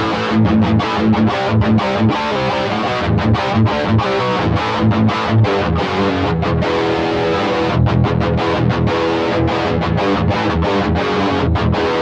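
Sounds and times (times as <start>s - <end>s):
distorted electric guitar: 0.0s - 12.0s.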